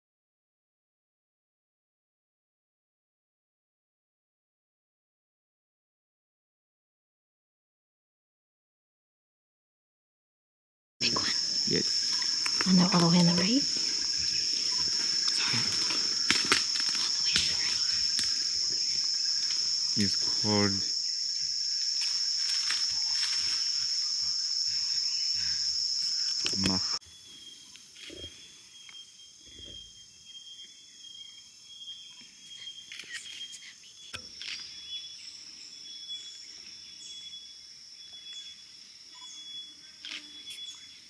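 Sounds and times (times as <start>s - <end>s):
insects droning: 11.0s - 41.0s
pulsed insect chirp: 11.0s - 41.0s.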